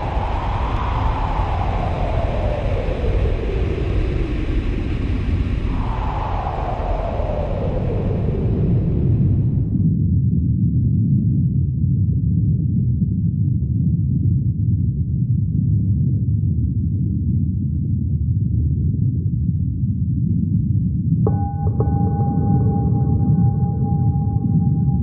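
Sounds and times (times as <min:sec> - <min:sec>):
deep electronic bass rumble: 0:21.3 - 0:25.0.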